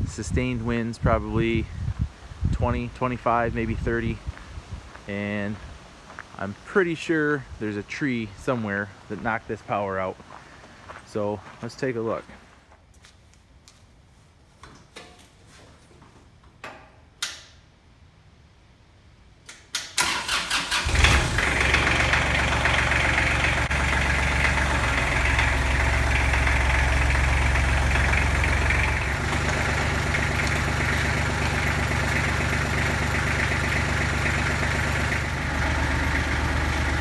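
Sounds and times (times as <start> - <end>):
tractor engine cranking: 19.7 - 37.0
diesel tractor engine idling: 20.0 - 37.0.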